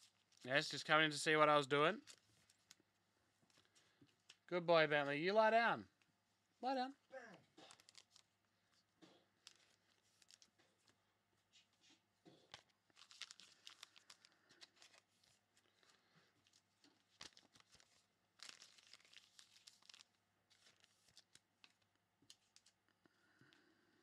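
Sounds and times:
wrappers crinkling and tearing: 0.0s - 1.0s, 2.0s - 2.8s, 7.5s - 8.4s, 9.4s - 11.0s, 12.4s - 22.8s.

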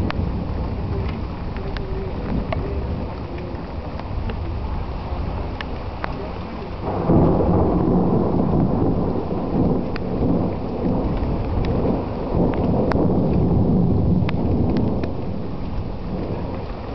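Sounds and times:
deep continuous rumbling: 0.0s - 16.9s
faint ticks: 14.2s - 15.2s.

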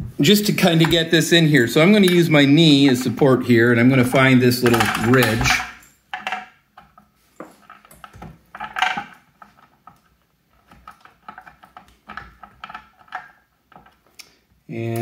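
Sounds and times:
metal clatter: 4.1s - 10.0s.

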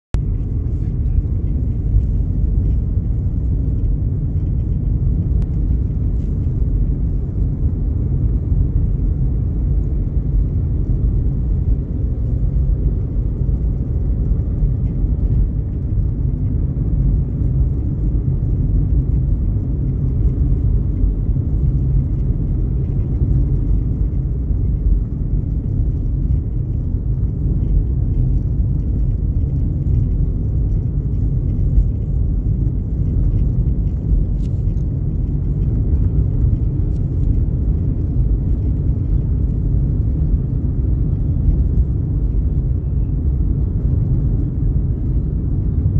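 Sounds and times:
car engine and tyre noise: 0.1s - 45.9s.

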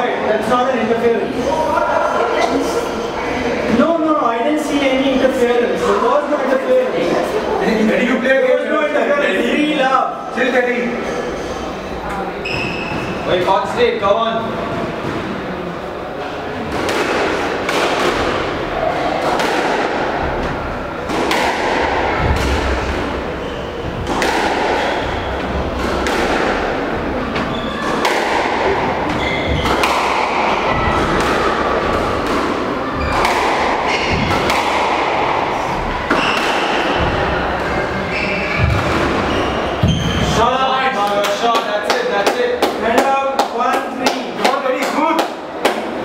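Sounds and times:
squash ball hitting rackets and walls: 14.6s - 15.5s, 16.3s - 46.0s.

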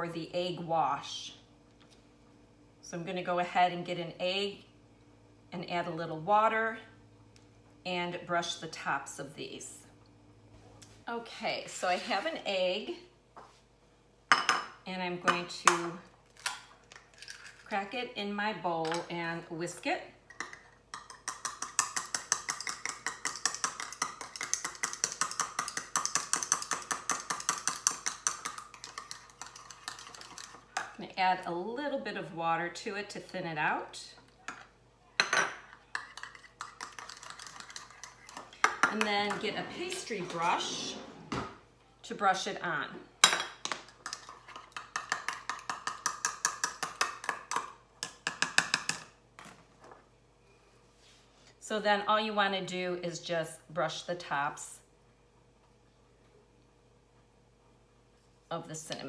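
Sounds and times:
egg being beaten in a bowl: 20.4s - 31.0s, 35.9s - 39.1s, 44.0s - 49.1s.

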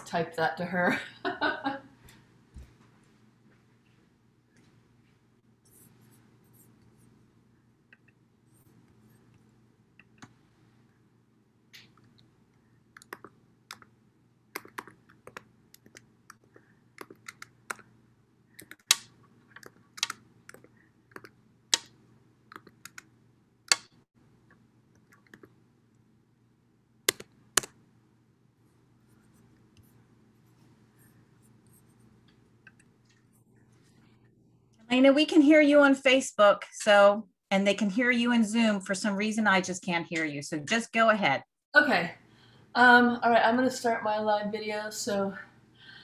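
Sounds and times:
faint low hum: 0.0s - 36.1s
typing on a keyboard: 14.6s - 17.8s, 18.6s - 21.9s, 22.5s - 23.1s.

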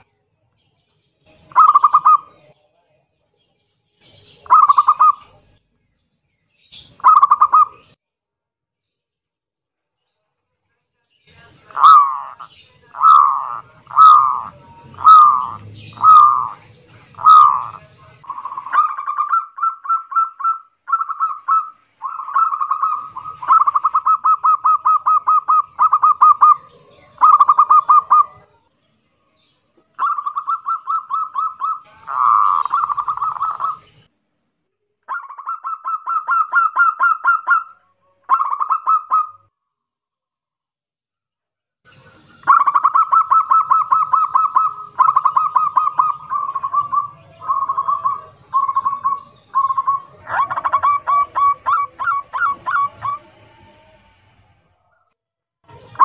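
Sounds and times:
dove cooing: 1.5s - 2.5s, 4.4s - 5.4s, 7.0s - 7.8s, 11.6s - 28.6s, 30.0s - 34.0s, 35.1s - 37.7s, 38.3s - 39.4s, 42.4s - 54.1s.

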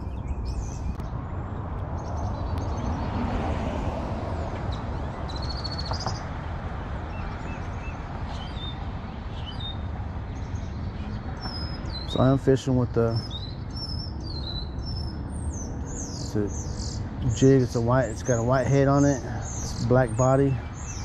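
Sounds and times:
wild birds chirping: 0.0s - 21.0s
bird trill: 13.1s - 21.0s.

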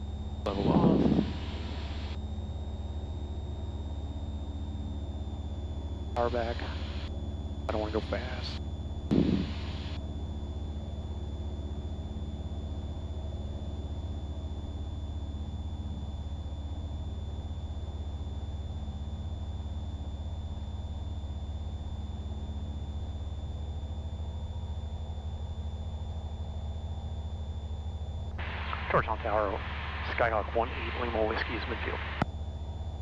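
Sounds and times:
twin propeller plane engines droning: 0.0s - 33.0s
thin high whine: 0.2s - 5.6s, 6.2s - 10.2s, 28.3s - 32.3s.

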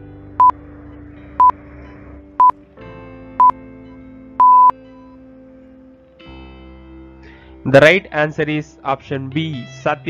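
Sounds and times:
background music: 0.0s - 10.0s
countdown timer beeping: 4.4s - 4.7s.

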